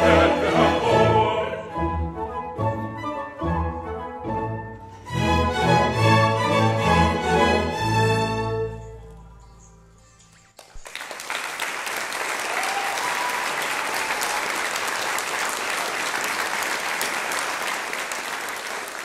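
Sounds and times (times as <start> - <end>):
audience applause: 10.6 - 19.0.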